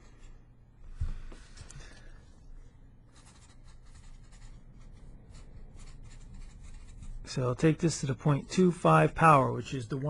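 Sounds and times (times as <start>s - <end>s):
marker writing on paper: 3.2s - 7.3s.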